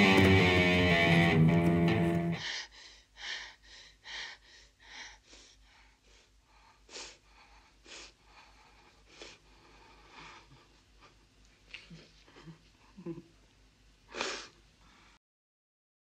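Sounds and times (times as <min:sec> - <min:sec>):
heavy breathing: 0:00.0 - 0:11.2
sharp gasps: 0:02.4 - 0:10.5.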